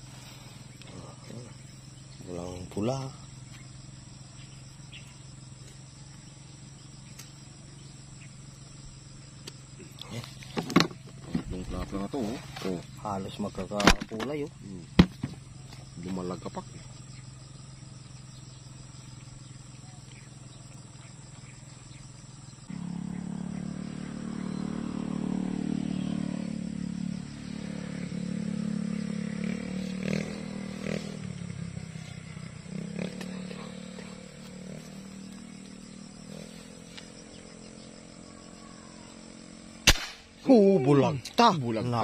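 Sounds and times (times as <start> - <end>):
small engine wavering pitch: 22.6 - 39.9
sharp clicks: 39.8 - 40.3.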